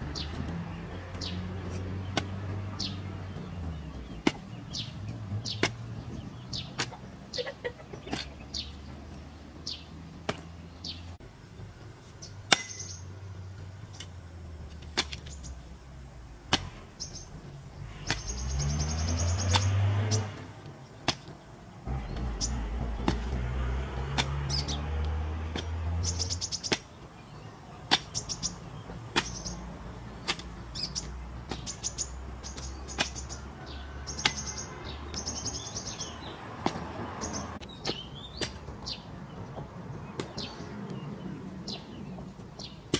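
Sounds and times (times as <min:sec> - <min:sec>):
small birds chirping: 0:00.0 - 0:42.9
hoe chopping into dirt: 0:01.6 - 0:02.4, 0:04.1 - 0:07.0, 0:10.2 - 0:10.5, 0:12.5 - 0:13.0, 0:14.8 - 0:15.4, 0:16.4 - 0:21.4, 0:22.0 - 0:27.0, 0:27.9 - 0:28.3, 0:29.1 - 0:29.6, 0:30.2 - 0:33.4, 0:34.1 - 0:35.2, 0:36.6 - 0:37.0, 0:37.6 - 0:38.9
low engine drone: 0:21.8 - 0:26.5.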